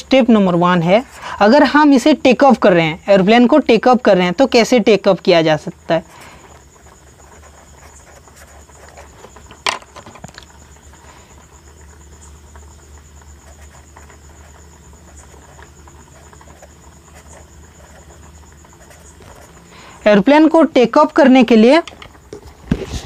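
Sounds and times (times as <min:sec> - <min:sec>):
steady low hum: 0:00.0 - 0:23.0
marker scratching on paper: 0:13.5 - 0:19.6.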